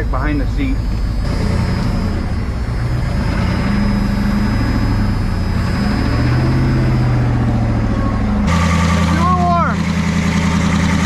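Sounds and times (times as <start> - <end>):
thin high whine: 0.0 - 2.8
diesel engine idling: 0.0 - 11.0.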